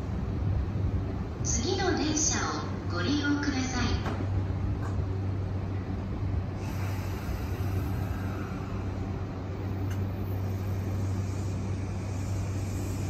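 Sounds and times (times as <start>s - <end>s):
air-conditioning hum: 0.0s - 13.0s
electric train pulling out: 6.4s - 13.0s.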